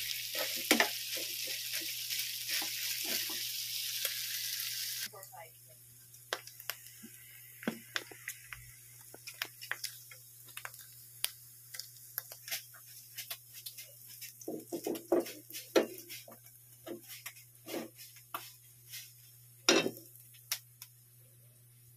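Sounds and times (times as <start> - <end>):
fat spitting in a frying pan: 0.0 - 5.2, 6.3 - 20.6
metal pan clattering: 19.7 - 20.0.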